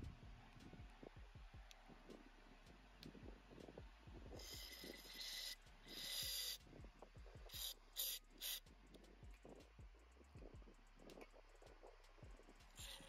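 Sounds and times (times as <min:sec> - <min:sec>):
aerosol spray hissing: 0:04.4 - 0:06.7, 0:07.5 - 0:08.6.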